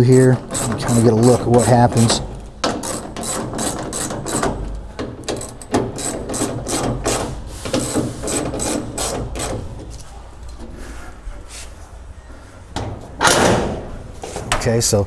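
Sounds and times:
ratchet wrench clicking: 0:00.4 - 0:01.8.

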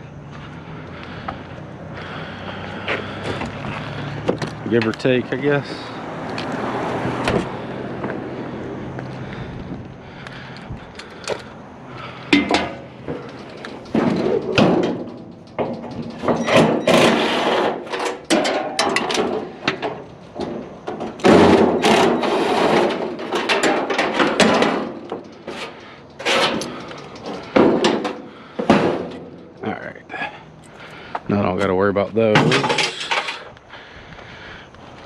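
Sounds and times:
heavy scrap metal clanking and scraping: 0:06.9 - 0:31.1, 0:32.2 - 0:33.5.

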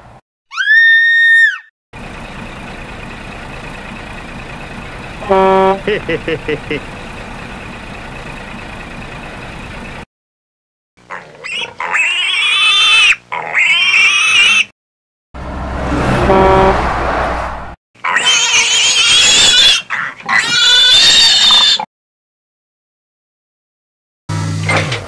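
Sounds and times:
pig squealing: 0:00.5 - 0:01.7, 0:11.0 - 0:14.7, 0:18.0 - 0:21.9
vehicle engine running: 0:02.0 - 0:10.1.

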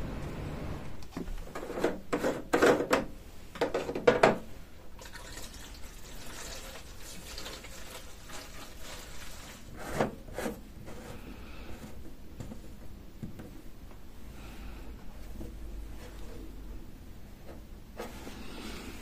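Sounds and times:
plastic funnel and bottle clattering: 0:01.2 - 0:10.5
fuel pouring through funnel: 0:05.0 - 0:09.8.

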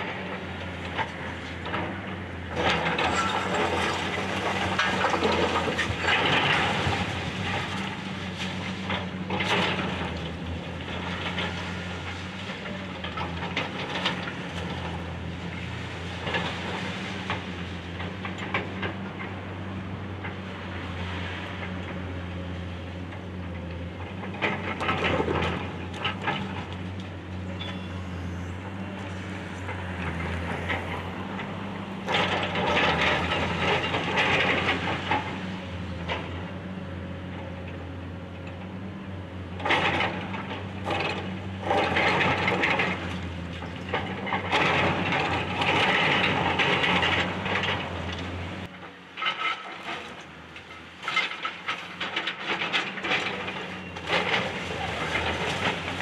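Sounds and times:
excavator diesel engine running: 0:00.0 - 0:56.0.

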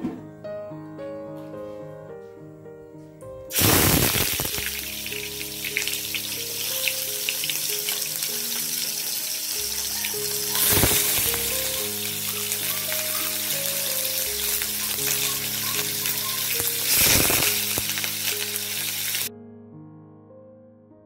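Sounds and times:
fish sizzling in hot oil: 0:03.5 - 0:19.3.

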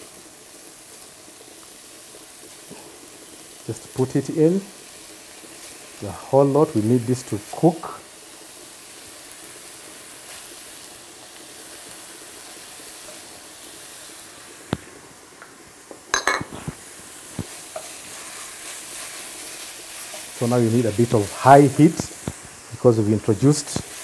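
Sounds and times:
minced meat sizzling in a pan: 0:00.0 - 0:24.0
utensil knocking on pan: 0:16.1 - 0:16.5
wooden spoon stirring: 0:16.2 - 0:22.5.

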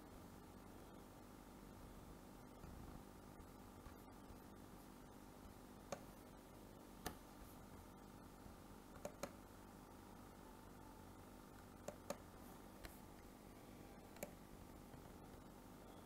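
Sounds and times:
faint steady hum: 0:00.0 - 0:16.0
computer mouse clicks: 0:05.9 - 0:06.2, 0:07.0 - 0:07.2, 0:08.9 - 0:09.4, 0:11.5 - 0:13.3, 0:14.1 - 0:15.1.

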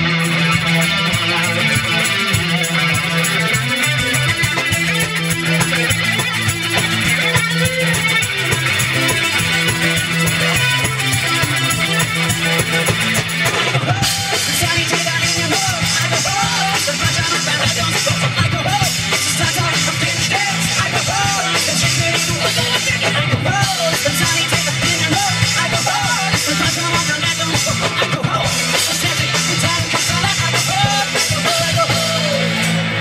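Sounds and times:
live punk rock band: 0:00.0 - 0:33.0.

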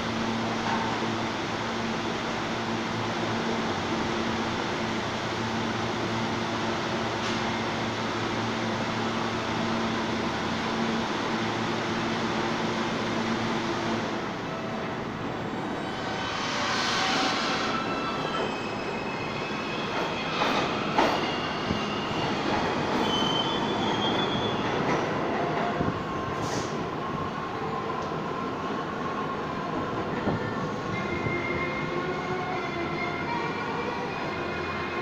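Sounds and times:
train wheels rumbling on rail: 0:00.0 - 0:32.0
high wheel squeals: 0:15.5 - 0:24.7.

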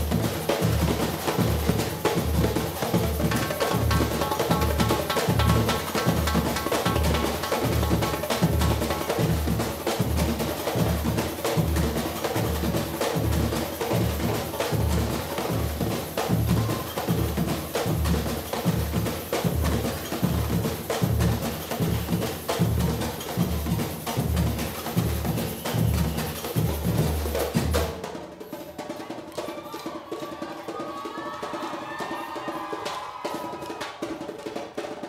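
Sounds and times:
higher drum and shaker patterns: 0:00.0 - 0:35.0.

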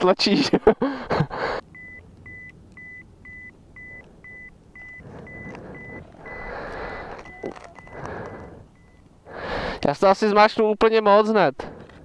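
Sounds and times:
high electronic beep: 0:01.8 - 0:09.0.

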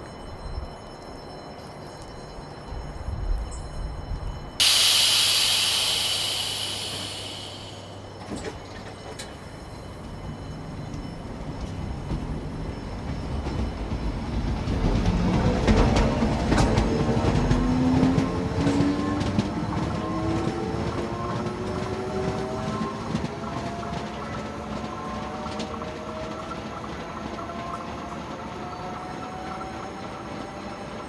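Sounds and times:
compressed air hiss: 0:04.6 - 0:08.2
train motor whine: 0:04.6 - 0:08.5.

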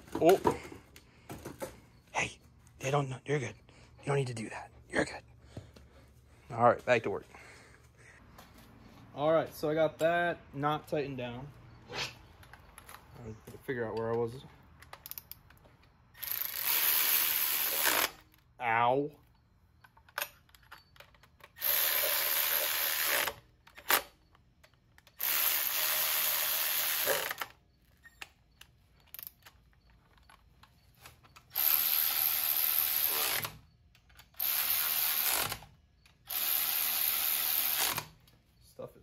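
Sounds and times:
power tool running bolts: 0:16.2 - 0:18.3, 0:21.5 - 0:24.0, 0:25.0 - 0:27.5, 0:31.5 - 0:33.6, 0:34.2 - 0:38.1.

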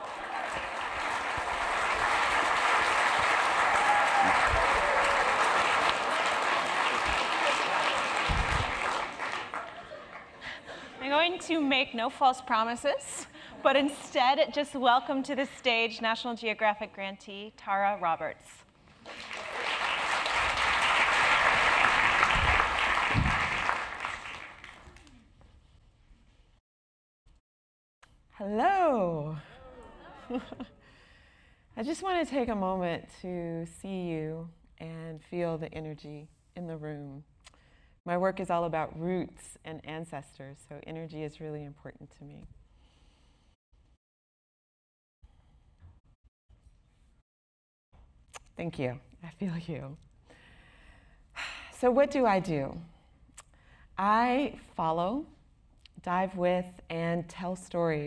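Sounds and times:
audience applauding: 0:00.0 - 0:10.5, 0:19.0 - 0:25.2.

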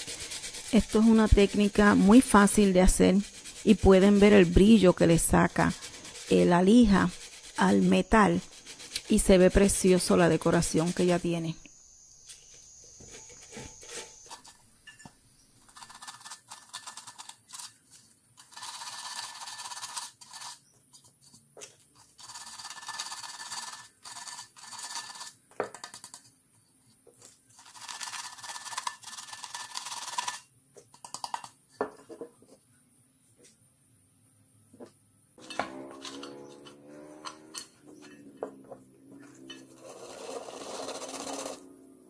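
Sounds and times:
sandpaper scraping on metal tin: 0:00.0 - 0:11.4, 0:13.1 - 0:14.7, 0:15.6 - 0:26.3, 0:27.5 - 0:31.6, 0:35.4 - 0:38.3, 0:39.2 - 0:41.8.

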